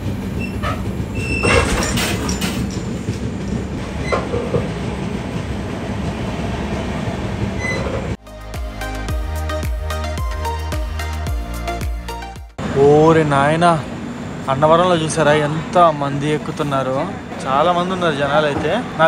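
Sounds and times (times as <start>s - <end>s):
train coach rumbling and clattering: 0.0s - 8.2s
squeaks and clanks: 0.3s - 4.6s, 7.6s - 8.2s
background music: 8.2s - 12.6s.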